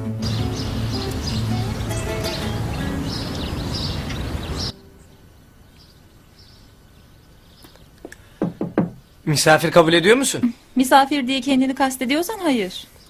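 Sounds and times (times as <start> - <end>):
low steady drone: 0.0 - 5.3
birds chirping: 0.0 - 13.0
knocks on a door: 8.4 - 9.0.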